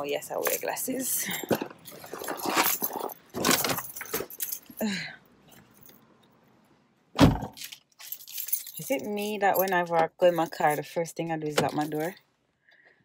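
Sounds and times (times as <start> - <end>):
keys jangling: 0.4 - 4.8, 7.5 - 10.9
car door shutting: 7.2 - 7.6.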